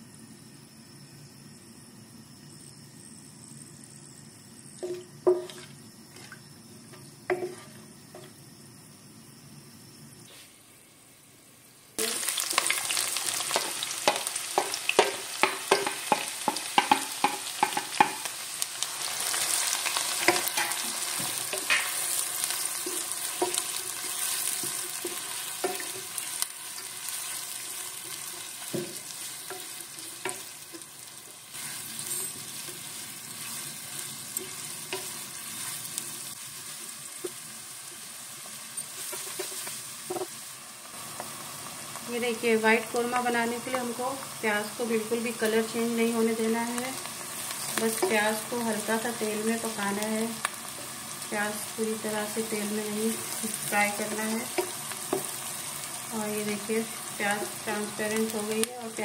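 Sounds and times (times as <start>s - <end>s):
onions sizzling in hot oil: 0.0s - 10.4s, 12.0s - 59.0s
spoon knocking against pan: 4.8s - 5.6s, 14.0s - 18.3s.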